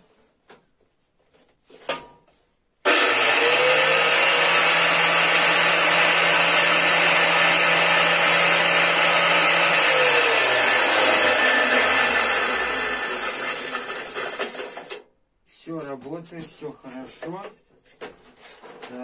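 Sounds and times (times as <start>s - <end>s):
angle grinder motor spinning: 2.9s - 15.0s.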